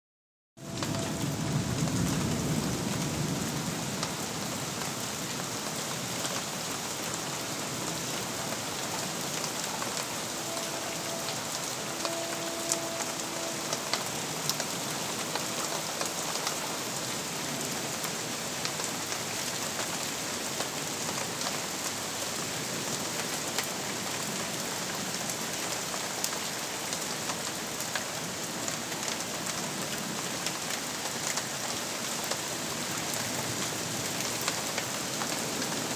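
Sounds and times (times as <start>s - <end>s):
low rumble of thunder: 0.6s - 4.6s
steady rain falling: 0.6s - 35.9s.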